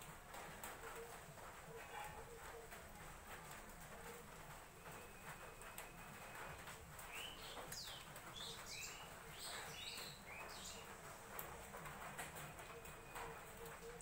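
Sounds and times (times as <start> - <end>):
bird chirping: 7.1 - 11.0.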